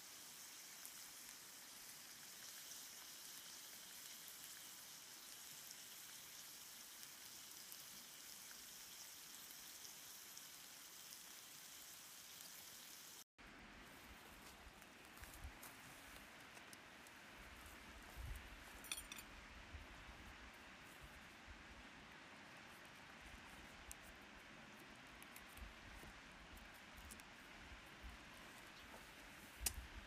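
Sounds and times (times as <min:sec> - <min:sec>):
fish sizzling in a pan: 0:00.0 - 0:13.2.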